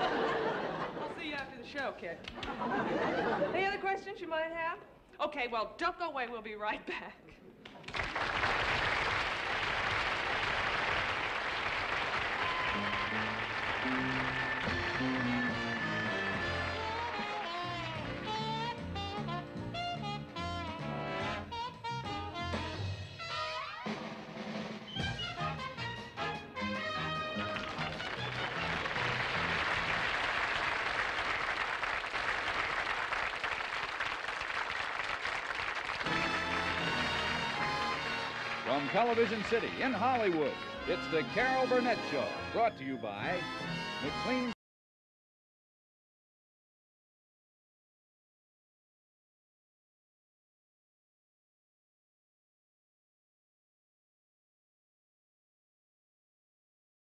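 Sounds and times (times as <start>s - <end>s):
audience applauding: 7.6s - 18.2s, 26.6s - 42.0s
instrumental music: 12.4s - 30.0s, 36.1s - 44.5s.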